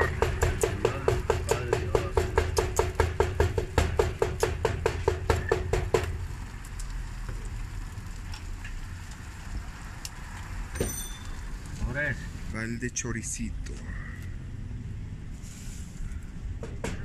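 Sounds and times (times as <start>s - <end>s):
knife chopping meat on board: 0.0s - 6.1s.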